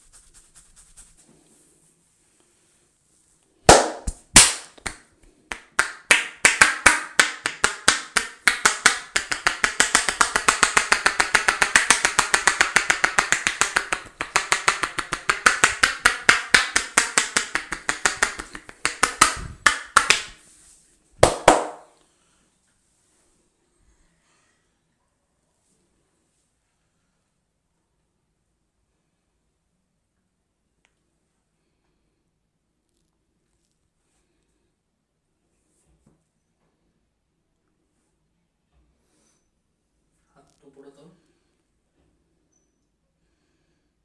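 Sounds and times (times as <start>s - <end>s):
hands clapping in head massage: 3.7s - 20.5s, 21.2s - 21.9s.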